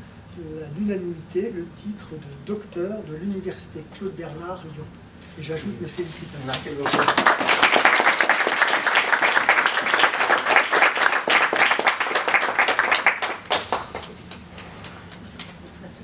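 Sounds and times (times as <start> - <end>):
group of people applauding: 6.5 - 15.6.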